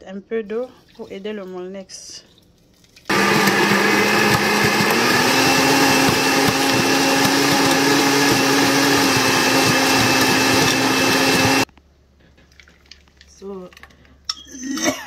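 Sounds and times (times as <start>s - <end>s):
blender motor grinding: 3.1s - 11.7s.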